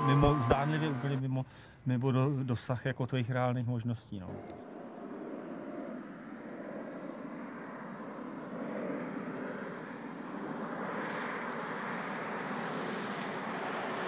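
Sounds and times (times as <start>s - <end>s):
jet airliner flying overhead: 4.3s - 14.0s.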